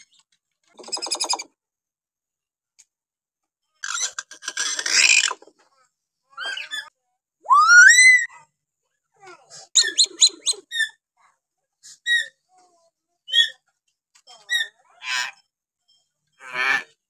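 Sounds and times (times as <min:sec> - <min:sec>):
bird whistling: 0:07.5 - 0:08.3.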